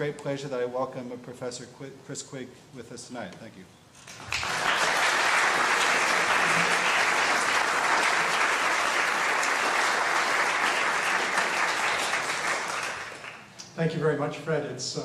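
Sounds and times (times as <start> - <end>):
audience applauding: 4.1 - 13.5.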